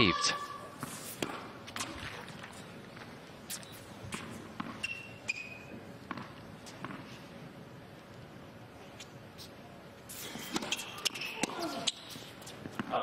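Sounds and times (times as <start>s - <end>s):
tennis ball bouncing: 0.8s - 3.1s, 4.0s - 7.2s, 10.4s - 13.0s
high squeaks: 4.7s - 5.8s, 10.1s - 12.6s.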